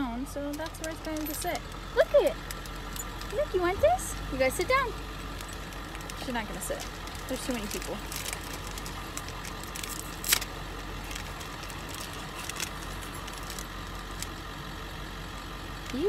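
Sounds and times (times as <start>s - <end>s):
steady low hum: 0.0s - 16.0s
plastic wrapper crinkling: 2.4s - 3.4s, 5.2s - 14.4s.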